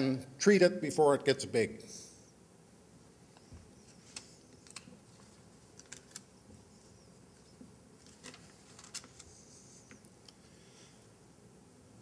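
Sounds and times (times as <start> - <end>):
paper rustle: 3.9 - 6.3, 8.0 - 9.9
papers being shuffled: 8.0 - 9.4.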